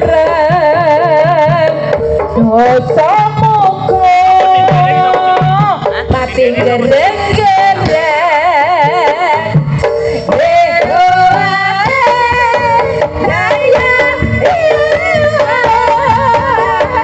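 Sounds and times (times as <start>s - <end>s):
gamelan music over loudspeakers: 0.0s - 17.0s
hand drums beating: 0.0s - 17.0s
high melodic lead: 1.9s - 8.4s.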